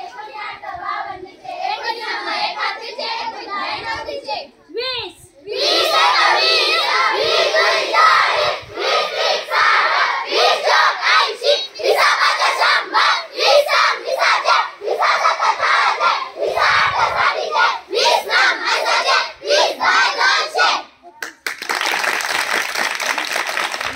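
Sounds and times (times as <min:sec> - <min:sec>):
children chanting in unison: 0:00.0 - 0:04.5, 0:05.4 - 0:20.9.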